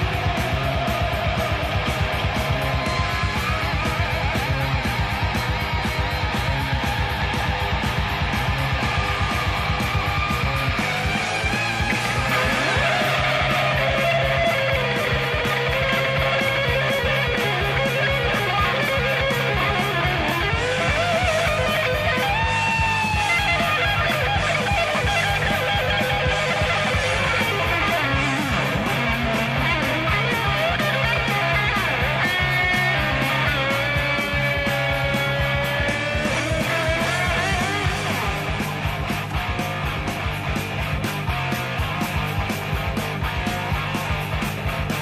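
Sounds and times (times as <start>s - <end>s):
bass: 0.0s - 45.0s
distorted electric guitars: 0.0s - 45.0s
fast drum beat: 0.0s - 45.0s.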